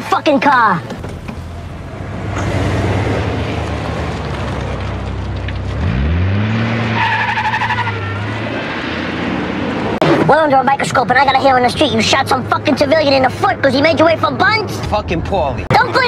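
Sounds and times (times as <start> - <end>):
car engine revving: 1.2 - 10.0
tyres squealing: 6.8 - 8.6.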